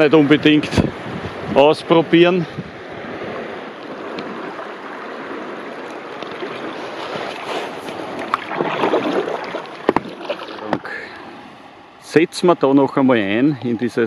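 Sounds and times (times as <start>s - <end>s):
paddle strokes: 0.0s - 12.1s
water rushing and splashing: 0.0s - 14.0s
sharp knocks: 9.8s - 10.8s.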